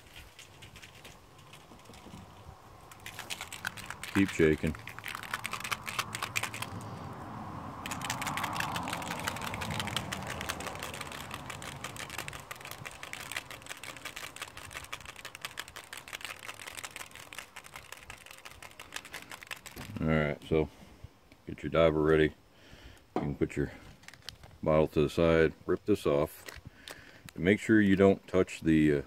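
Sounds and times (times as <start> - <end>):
plastic bottle shaken rattling: 0.0 - 6.8, 7.8 - 20.1, 24.0 - 24.5.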